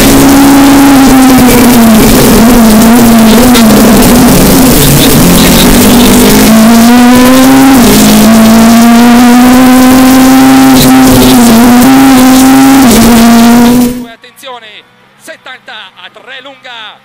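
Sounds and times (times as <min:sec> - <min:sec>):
car engine running hard: 0:00.0 - 0:14.2
road noise: 0:00.0 - 0:17.0.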